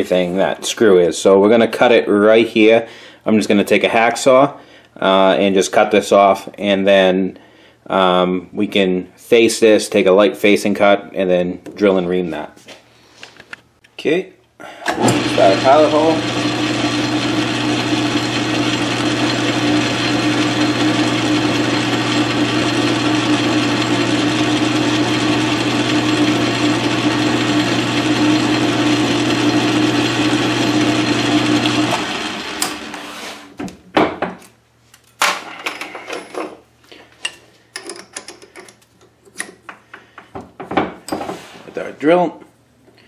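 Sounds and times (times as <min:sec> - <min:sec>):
metal lathe humming: 0:14.9 - 0:33.1
metal clinks and knocks: 0:35.4 - 0:36.6, 0:37.2 - 0:39.8.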